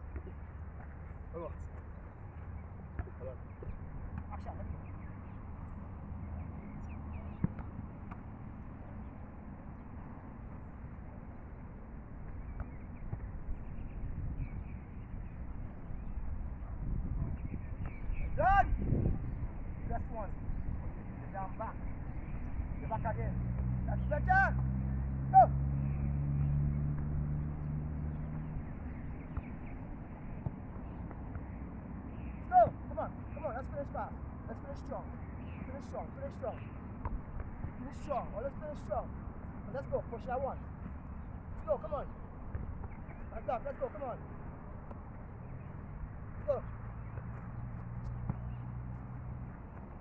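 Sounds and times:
vehicle engine humming: 0.0 - 16.8, 19.2 - 50.0
soft thumps of a football: 2.9 - 4.4, 7.3 - 8.4, 12.3 - 13.4, 37.0 - 37.7, 42.4 - 43.3, 47.2 - 48.6
football being kicked: 2.9 - 4.5, 7.2 - 8.4, 12.2 - 13.5, 28.2 - 31.6, 36.6 - 38.2, 41.6 - 43.7, 46.3 - 50.0
wind rumble on microphone: 12.1 - 23.9.

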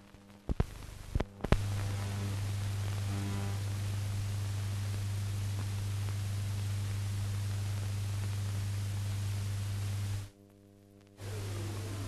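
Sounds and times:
film soundtrack hiss and hum: 0.0 - 12.0.

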